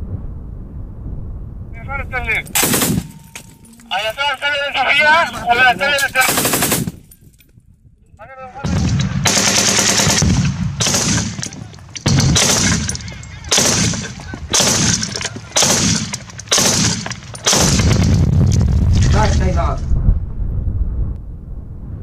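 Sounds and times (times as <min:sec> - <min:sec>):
automatic gunfire bursts: 0:02.6 - 0:03.2, 0:06.2 - 0:07.0, 0:09.2 - 0:11.4, 0:12.0 - 0:18.2.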